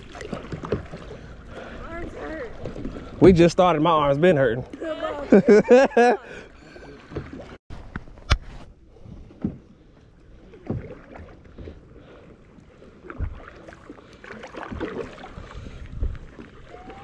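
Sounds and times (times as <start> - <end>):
paddle splashing into water: 0.0 - 3.8, 10.4 - 12.1, 13.0 - 17.0.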